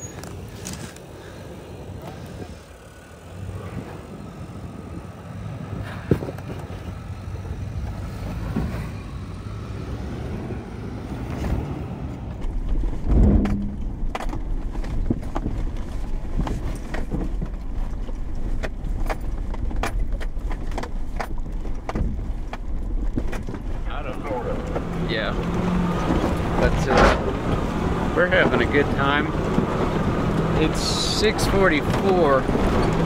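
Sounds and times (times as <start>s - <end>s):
truck engine running low: 0.0s - 33.0s
heavy thump: 13.0s - 14.0s.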